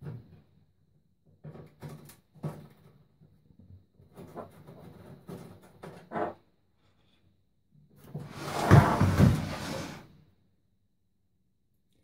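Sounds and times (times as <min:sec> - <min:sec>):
microwave scraping on worktop: 0:08.3 - 0:10.0.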